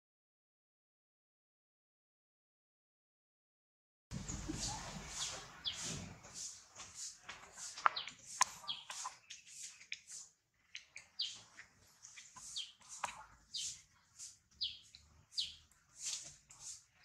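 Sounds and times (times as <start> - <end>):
bird chirping: 4.1 - 6.5, 7.7 - 16.2.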